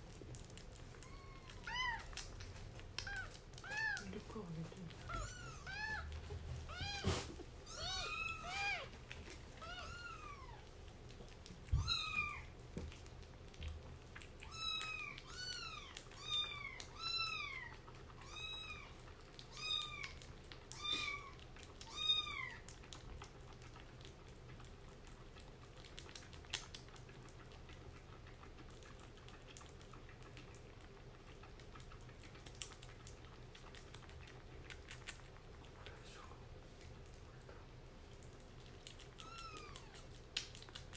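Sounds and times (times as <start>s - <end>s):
kitten mewing: 3.0s - 4.2s, 4.9s - 9.0s, 14.4s - 22.6s, 39.0s - 40.6s.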